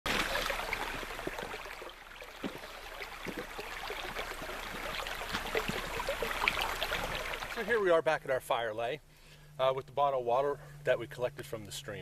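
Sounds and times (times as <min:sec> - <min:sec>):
stream running over stones: 0:00.1 - 0:08.0.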